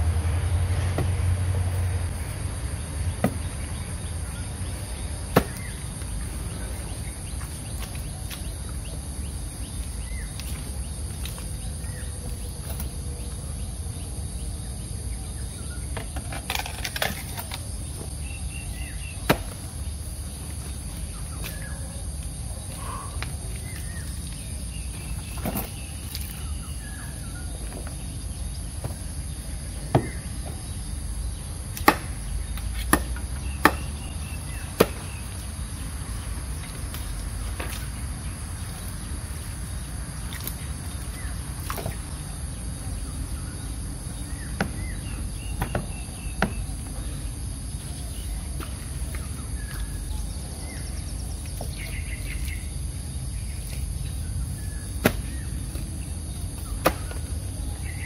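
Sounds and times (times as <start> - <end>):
insects droning: 0.0 - 58.0.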